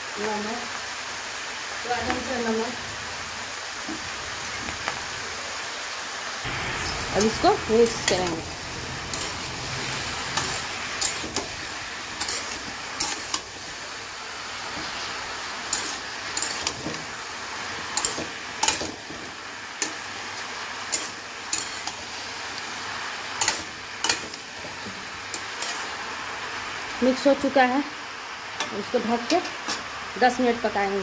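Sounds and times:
frying hiss: 0.0 - 31.0
metal spatula scraping a pan: 6.7 - 13.5.

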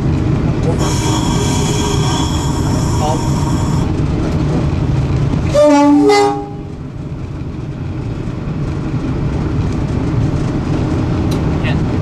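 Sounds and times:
locomotive engine drone: 0.0 - 12.0
two-tone locomotive horn: 0.6 - 4.0, 5.5 - 6.8.

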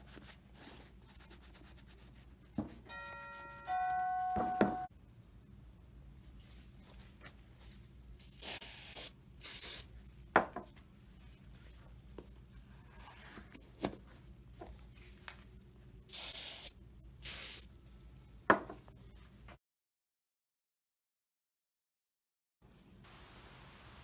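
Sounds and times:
short spray bursts: 8.2 - 9.9, 16.1 - 17.7.

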